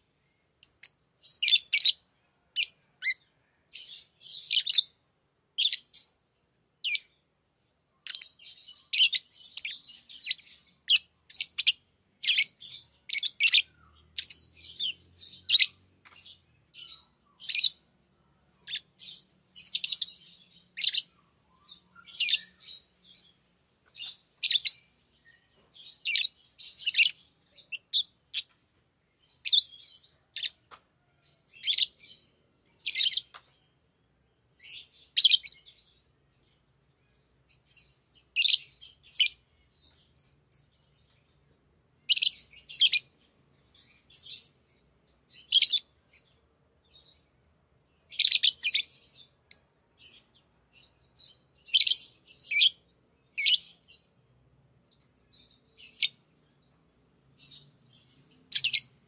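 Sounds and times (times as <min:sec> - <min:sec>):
lovebirds chirping: 0:00.0 - 0:59.0.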